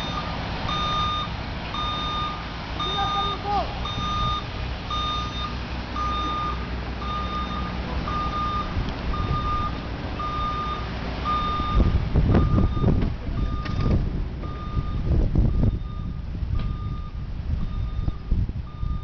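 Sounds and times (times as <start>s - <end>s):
low engine rumble: 0.0s - 19.0s
truck backup alarm beeping: 0.0s - 19.0s.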